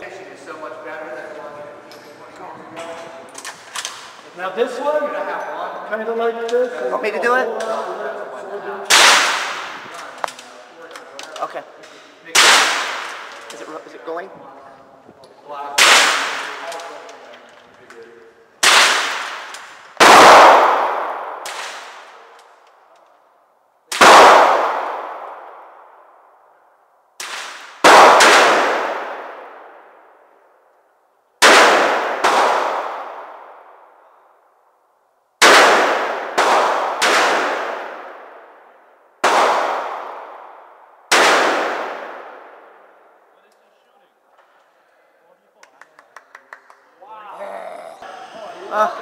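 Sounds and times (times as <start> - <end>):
revolver gunshots with reverberation: 8.9 - 10.0, 12.3 - 13.6, 15.8 - 17.1, 18.6 - 22.3, 23.9 - 26.3, 27.2 - 30.4, 31.4 - 34.0, 35.4 - 43.2.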